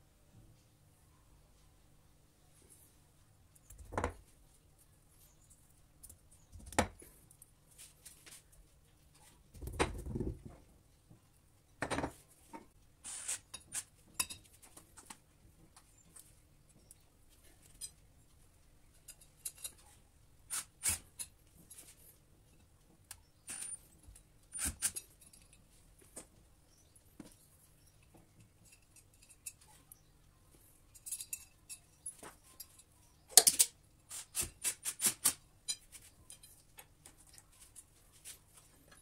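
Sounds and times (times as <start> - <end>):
tools clicking and tapping: 30.9 - 33.8, 34.4 - 37.9.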